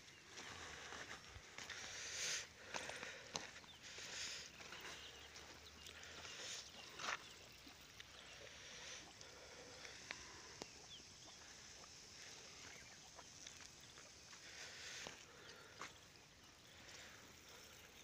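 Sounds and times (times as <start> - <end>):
water spraying from hoses: 3.8 - 18.0.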